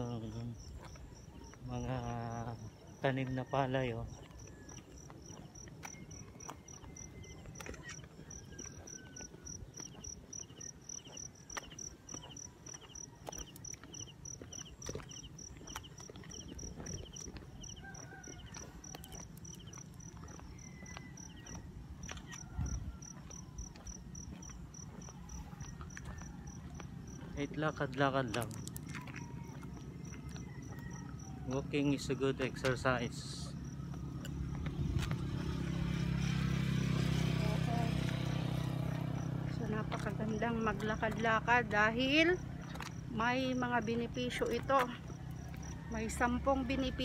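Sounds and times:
crickets chirping: 0.0s - 47.0s
walking clicks: 4.1s - 31.3s, 37.9s - 47.0s.

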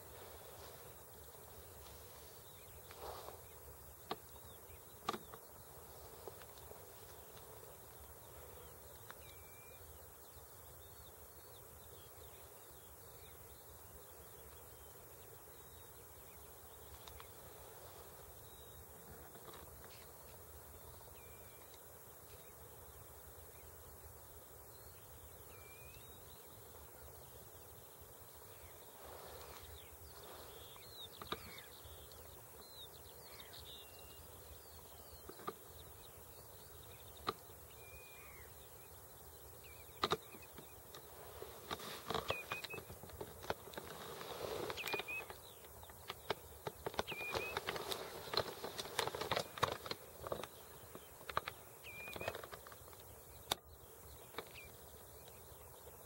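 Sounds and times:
whistled bird calls: 42.1s - 42.9s, 44.7s - 45.4s, 47.0s - 47.9s, 51.8s - 52.4s.

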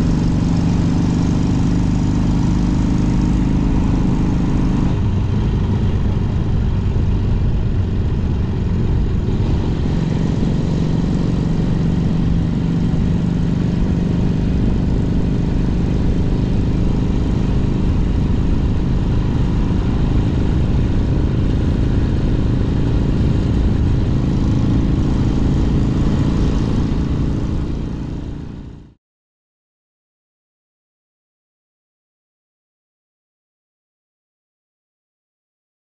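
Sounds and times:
motorcycle engine running: 0.0s - 29.0s
wind rush over microphone: 2.4s - 28.5s.

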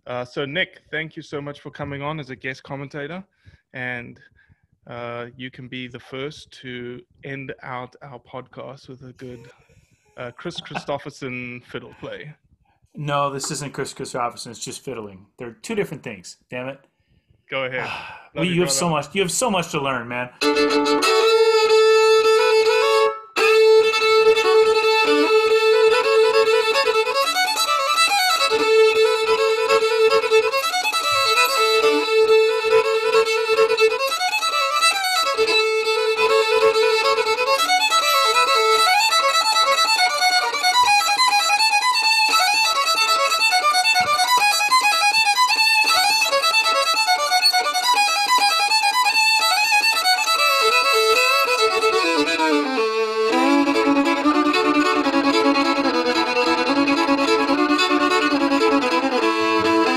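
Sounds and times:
solo fiddle playing: 18.4s - 59.9s.

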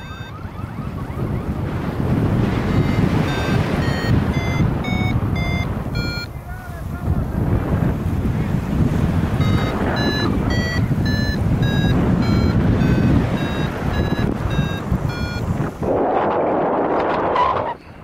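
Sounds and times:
variometer beeping: 0.0s - 1.5s, 2.3s - 6.4s, 9.3s - 15.8s
wind rushing over microphone: 0.0s - 18.0s.

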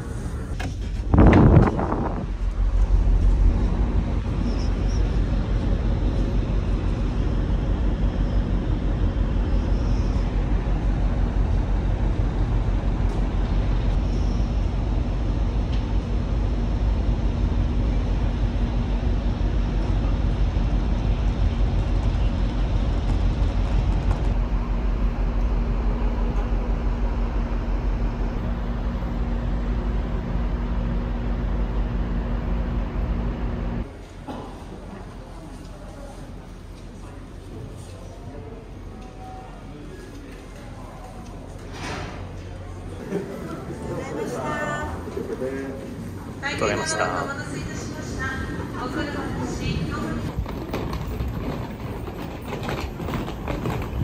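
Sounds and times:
wind rumbling on microphone: 0.0s - 26.2s, 48.3s - 54.0s
ferry machinery drone: 0.0s - 35.3s.

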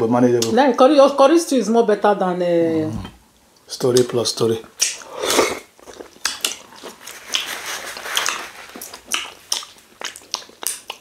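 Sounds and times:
wet lip smacks while eating: 4.8s - 5.1s, 5.8s - 11.0s.

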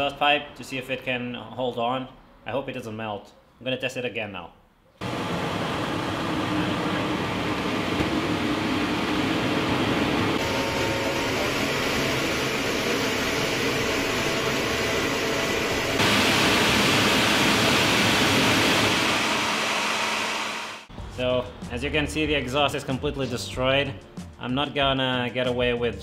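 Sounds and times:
jet engine rushing noise: 5.0s - 20.9s.

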